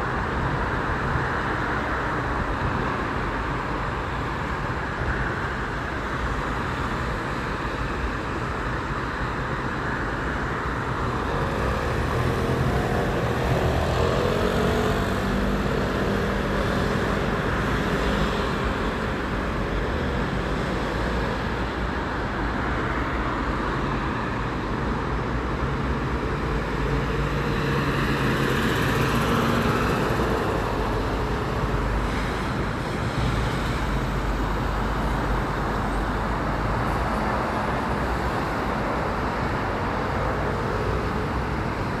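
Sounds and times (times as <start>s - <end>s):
city road traffic: 0.0s - 42.0s.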